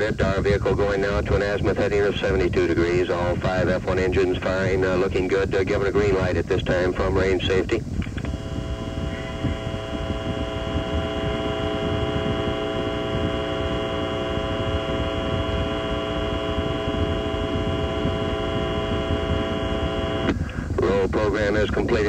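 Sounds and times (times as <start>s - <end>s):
deep rocket launch rumble: 0.1s - 21.8s
held chord of steady tones: 8.3s - 20.3s.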